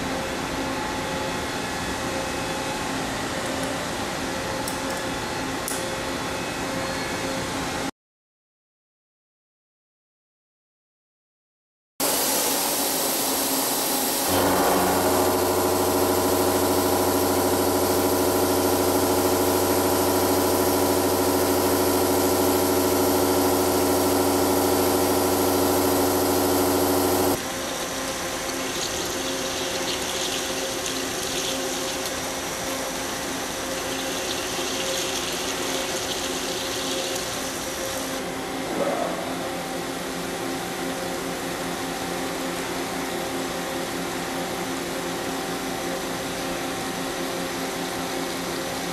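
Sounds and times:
milling machine whine: 12.0 - 38.6
drill cutting steel: 14.2 - 27.4
coolant splashing: 25.1 - 38.1.

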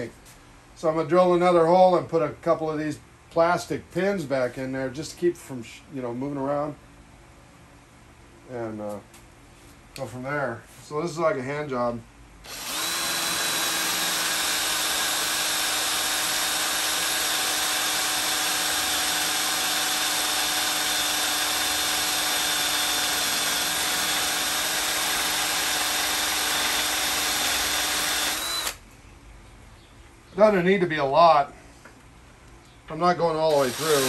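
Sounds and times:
cordless drill boring into metal: 12.5 - 28.8, 33.5 - 34.0.

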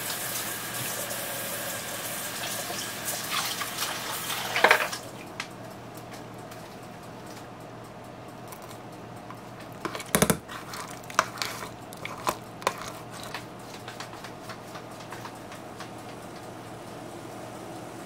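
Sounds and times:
steady background hum: 0.0 - 18.0
ladle knocking against pot: 9.9 - 10.4.

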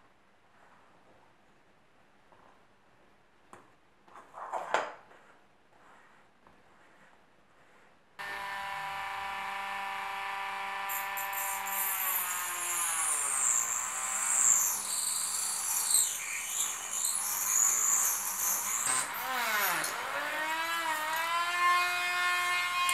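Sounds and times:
rotary tool whining: 8.2 - 22.9.

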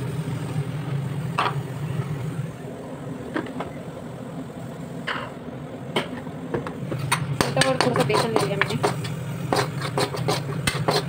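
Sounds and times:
low kitchen hum: 0.0 - 11.0.

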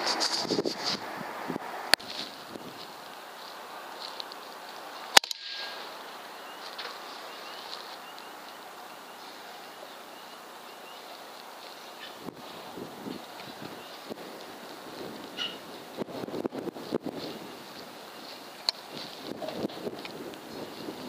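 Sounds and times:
faint steady hiss: 0.0 - 21.0.

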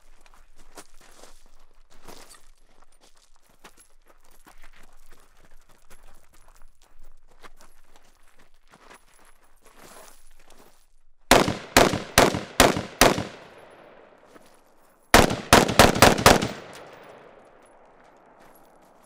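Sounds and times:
rifle gunshots with echo: 11.3 - 14.3, 15.2 - 17.9.

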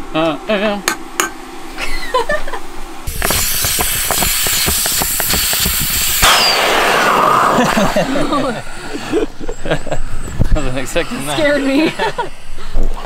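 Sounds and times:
air hissing out of valve: 3.1 - 9.0.

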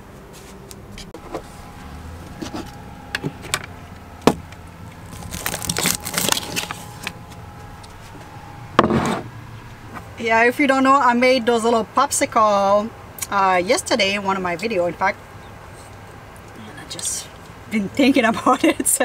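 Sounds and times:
rustling and clatter of packages: 4.3 - 8.1.

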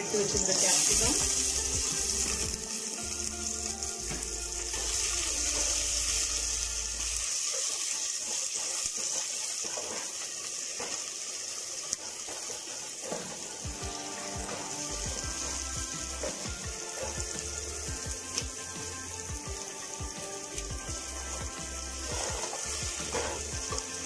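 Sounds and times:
vegetables sizzling in hot oil: 0.0 - 24.0.

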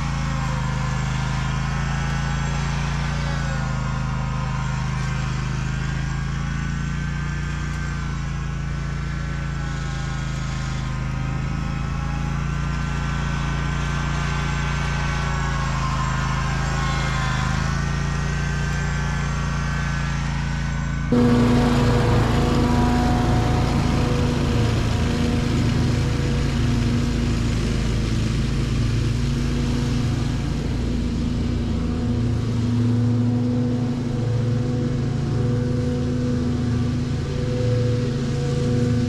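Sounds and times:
drag rake over turf: 0.0 - 34.1
mower engine running: 0.0 - 39.0
wavering high whine: 14.0 - 39.0.

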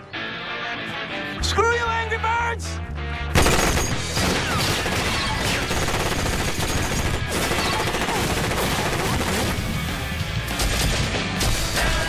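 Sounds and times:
rapid rifle gunfire: 3.4 - 12.0.

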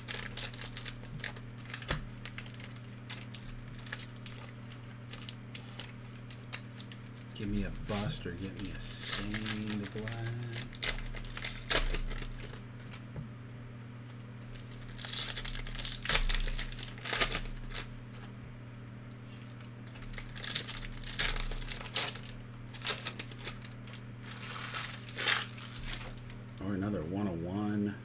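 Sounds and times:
foil wrappers crinkling and tearing: 0.0 - 13.0, 14.1 - 18.3, 19.3 - 26.6.

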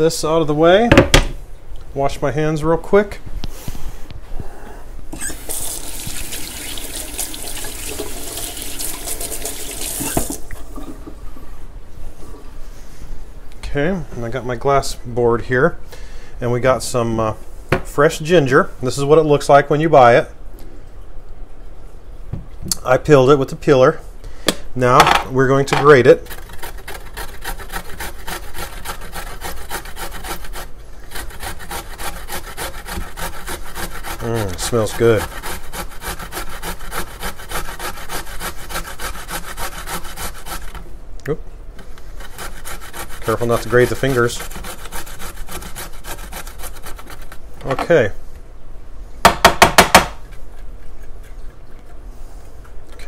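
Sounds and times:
faucet running: 5.2 - 10.6
ginger grated on metal grater: 26.0 - 40.8, 42.2 - 47.8.

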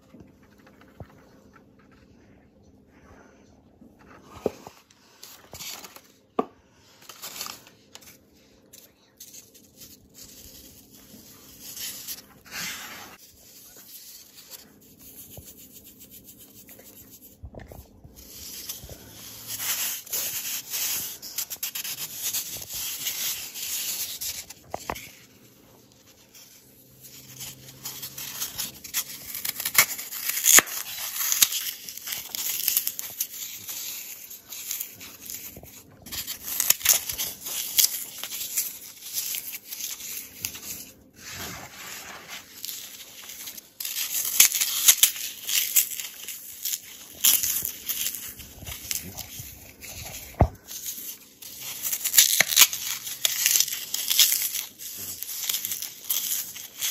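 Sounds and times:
floral foam crunching and crackling: 18.1 - 56.9.

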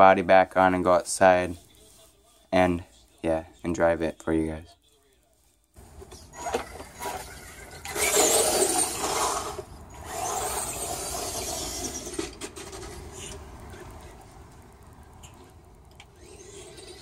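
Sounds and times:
tyres on concrete and grass: 4.8 - 17.0
electric motor whine: 6.2 - 13.1, 15.9 - 17.0.

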